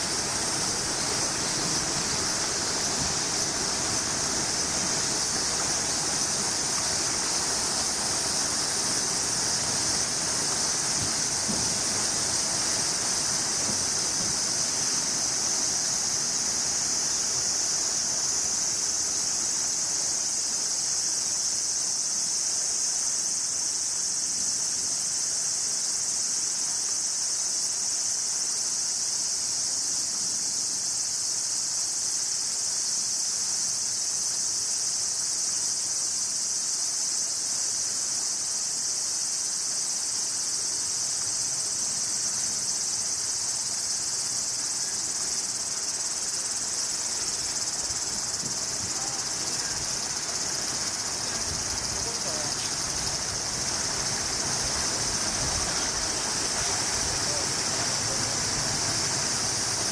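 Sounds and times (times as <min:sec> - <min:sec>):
cicadas buzzing: 0:00.0 - 0:59.9.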